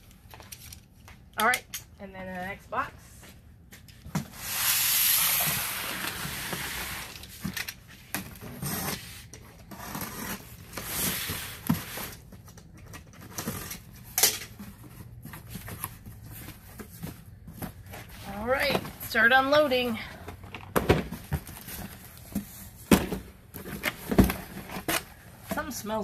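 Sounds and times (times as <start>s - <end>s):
cardboard rustling: 13.1s - 26.0s.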